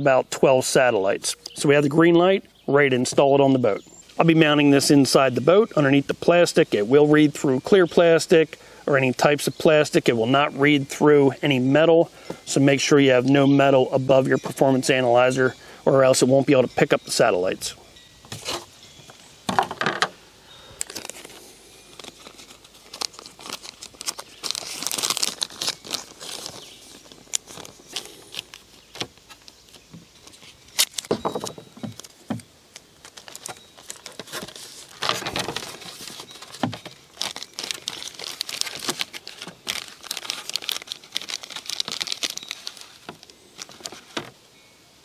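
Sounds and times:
plastic bag crinkling: 20.6 - 44.3.

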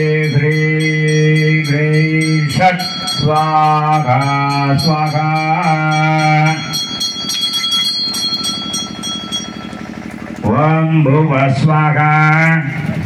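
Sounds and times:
hand bell ringing rapidly: 0.0 - 10.0.

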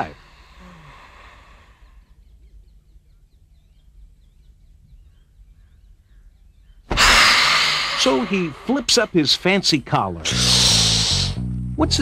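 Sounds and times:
faint high bird chirps: 1.8 - 6.9
lizard hissing: 6.9 - 9.3, 10.2 - 11.4.

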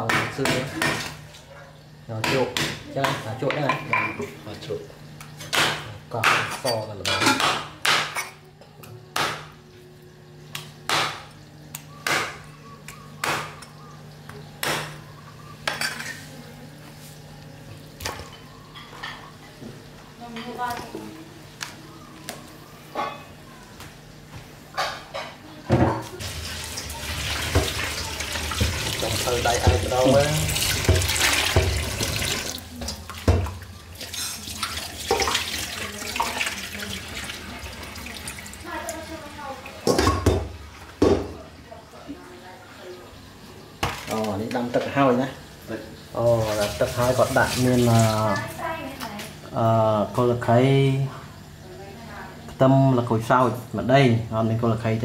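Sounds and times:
water splashing in steel bowl: 26.2 - 39.8, 46.2 - 48.6.

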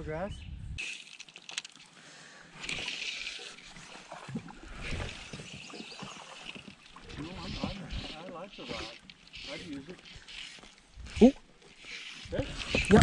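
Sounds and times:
water lapping against boat: 3.4 - 13.0.

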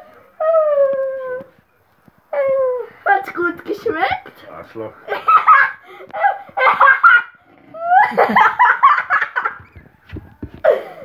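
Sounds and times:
boy laughing: 5.1 - 9.8.

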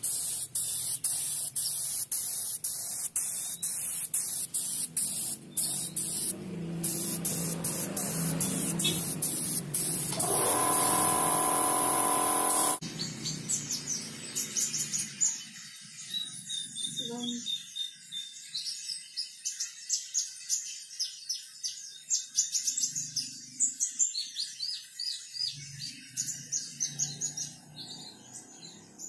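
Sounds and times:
paint spray gun hissing in bursts: 0.0 - 12.8.

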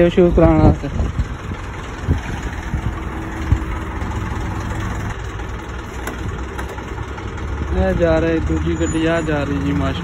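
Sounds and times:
diesel engine idling: 0.0 - 10.0.

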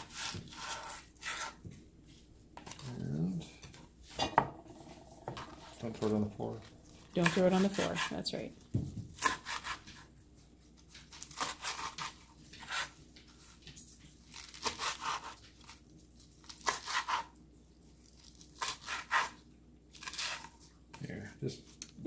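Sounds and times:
knife chopping leaves on cutting board: 0.0 - 1.6, 8.8 - 10.0, 16.6 - 17.3, 18.6 - 19.4.

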